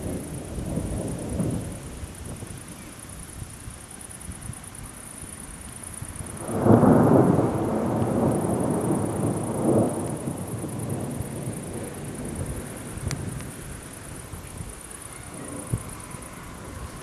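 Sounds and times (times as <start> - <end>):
thunder rumbling: 0.0 - 3.6, 4.3 - 17.0.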